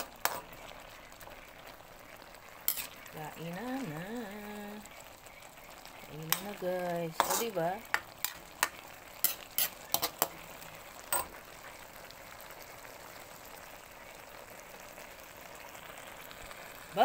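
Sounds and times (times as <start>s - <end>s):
broth sizzling: 0.0s - 17.0s
metal ladle clinking against wok: 11.1s - 11.4s.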